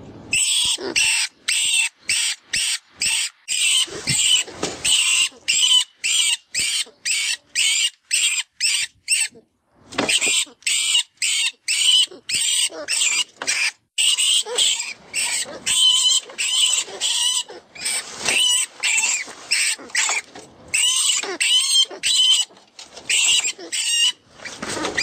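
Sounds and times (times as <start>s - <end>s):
rodent squeals: 10.2s - 20.2s.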